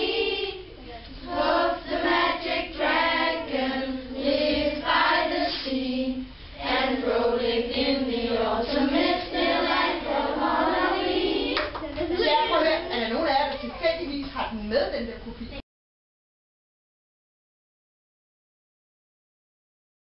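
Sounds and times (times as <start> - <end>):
children singing together: 0.0 - 13.9.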